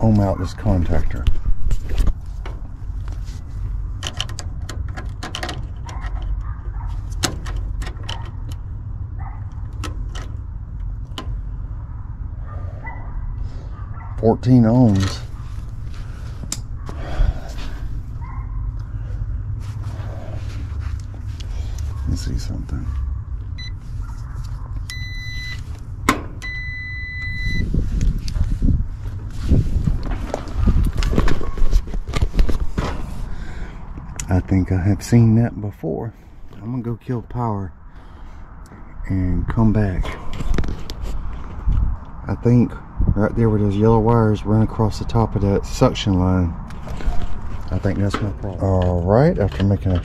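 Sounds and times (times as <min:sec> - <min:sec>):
steady low rumble: 0:00.0 - 0:50.0
deep rumble: 0:15.1 - 0:35.2
high-pitched meter beeps: 0:26.4 - 0:27.7.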